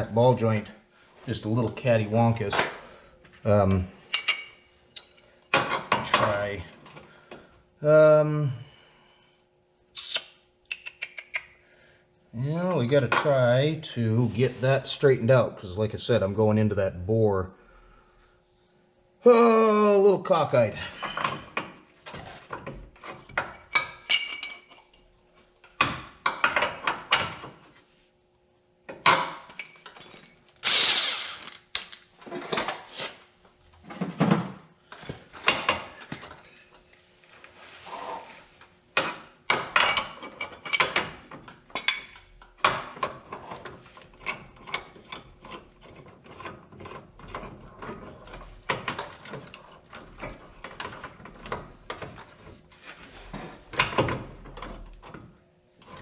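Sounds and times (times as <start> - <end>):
steel tools clinking and scraping: 4.1 - 6.5, 22.2 - 25.5, 39.0 - 55.2.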